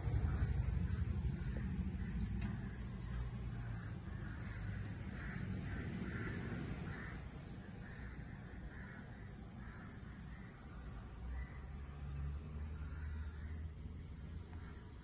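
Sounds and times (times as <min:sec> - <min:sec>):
steady low rumble: 0:00.0 - 0:11.2
crow cawing: 0:00.1 - 0:12.0, 0:12.6 - 0:15.0.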